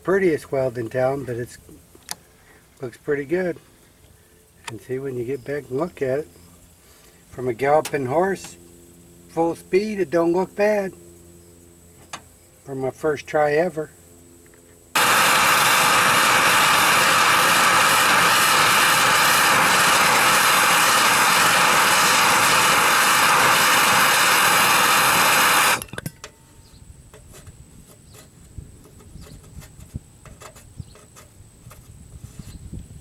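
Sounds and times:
gas torch hissing: 0:14.9 - 0:25.9.

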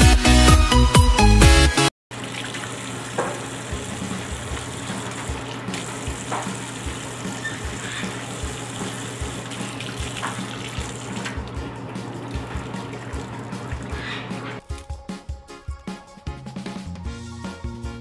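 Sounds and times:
tap water running into metal sink: 0:02.1 - 0:14.6
water splashes: 0:02.1 - 0:14.6.

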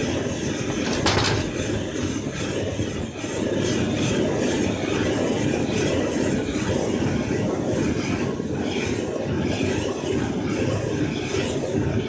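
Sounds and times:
gas torch flame rushing: 0:00.0 - 0:12.0.

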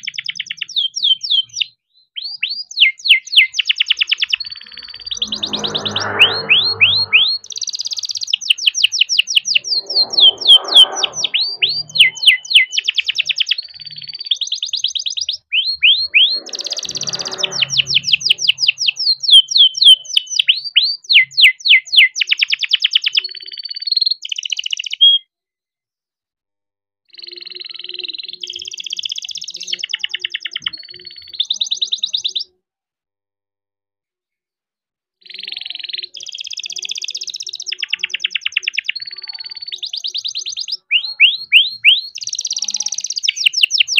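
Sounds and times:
canary singing: 0:00.0 - 0:25.2, 0:27.1 - 0:32.5, 0:35.2 - 0:43.9.

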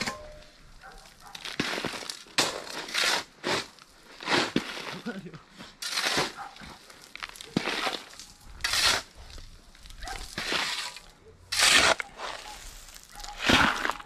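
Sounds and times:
shovel scraping loose fill: 0:07.6 - 0:09.2, 0:10.4 - 0:12.7.

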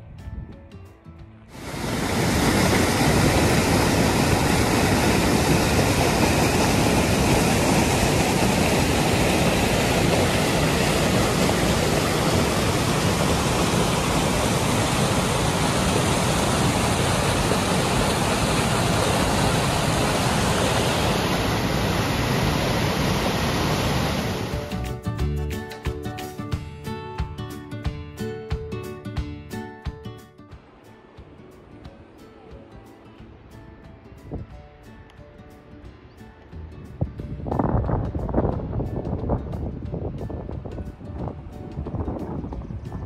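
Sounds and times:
creek rushing over boulders: 0:01.5 - 0:24.9.

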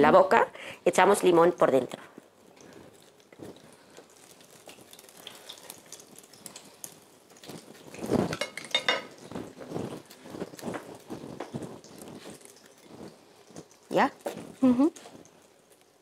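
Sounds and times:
frying oil sizzling: 0:00.0 - 0:16.0
dishes and cutlery clinking: 0:07.9 - 0:11.5.

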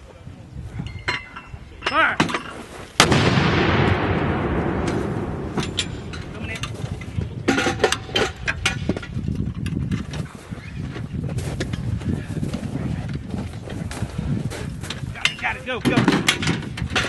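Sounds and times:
metallic clinks and knocks: 0:00.8 - 0:02.6, 0:04.9 - 0:10.4, 0:14.8 - 0:17.0
mortar blast with rolling rumble: 0:03.0 - 0:09.0.

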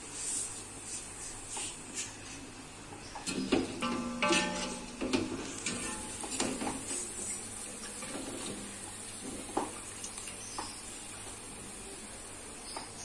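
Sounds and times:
hot oil sizzling in a pot: 0:02.9 - 0:13.0.

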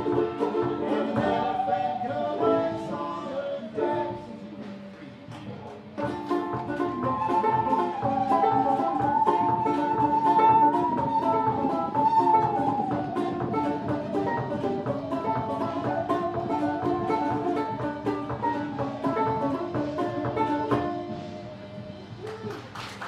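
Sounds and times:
banjo and guitar picking: 0:00.0 - 0:21.8
light drums: 0:00.0 - 0:23.0
musical saw melody: 0:06.0 - 0:22.2.

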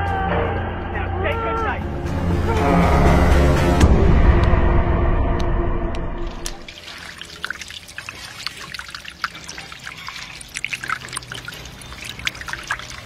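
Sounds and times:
small water drips: 0:06.3 - 0:13.0
water trickling and splashing: 0:06.3 - 0:13.0.

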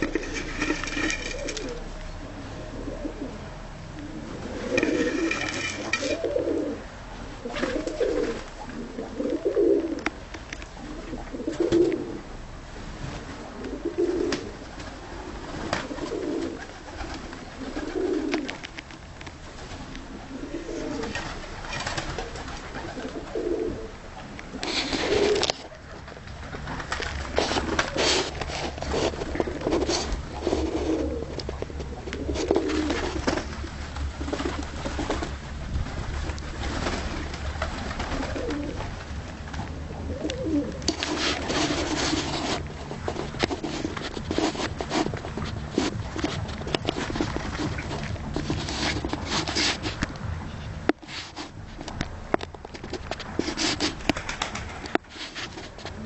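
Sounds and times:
pigeons cooing: 0:00.0 - 0:10.2, 0:10.8 - 0:12.3, 0:13.3 - 0:18.6, 0:20.0 - 0:26.1, 0:27.2 - 0:35.4, 0:36.5 - 0:49.8.

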